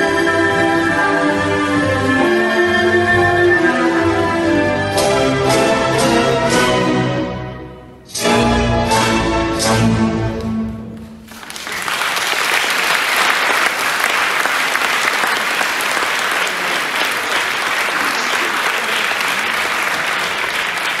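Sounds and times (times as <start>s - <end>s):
audience applauding: 11.2s - 21.0s.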